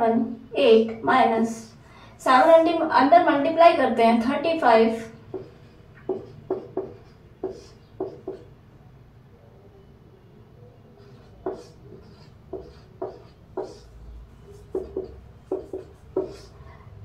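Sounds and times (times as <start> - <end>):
marker writing on whiteboard: 4.8 - 8.5, 10.9 - 16.8.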